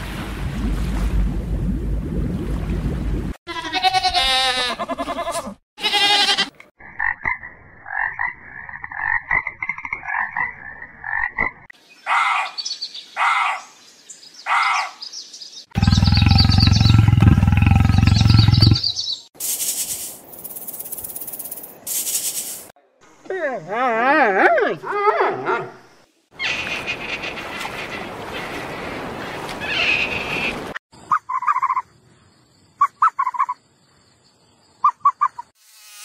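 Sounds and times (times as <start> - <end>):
loud deep animal call: 15.8 - 18.9.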